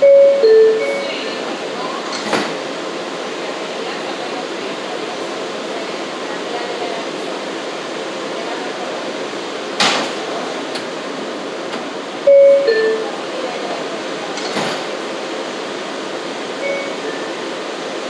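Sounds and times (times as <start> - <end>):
subway car rushing noise: 0.0 - 18.0.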